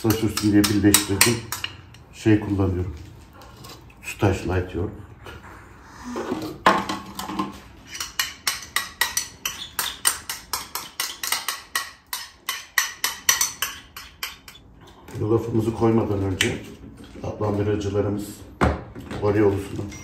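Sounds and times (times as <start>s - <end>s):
spoon scraping and tapping a bowl: 0.0s - 2.0s, 7.2s - 14.8s.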